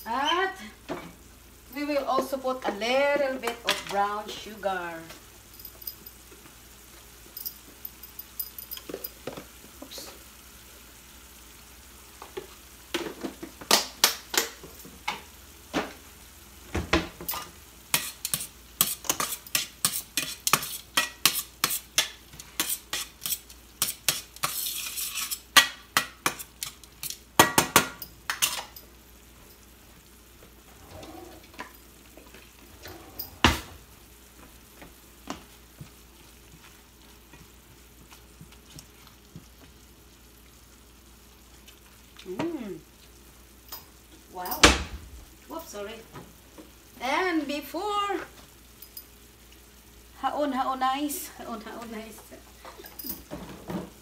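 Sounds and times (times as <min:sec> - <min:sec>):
food sizzling: 0:00.0 - 0:54.0
utensil scraping metal frying pan: 0:17.9 - 0:26.7.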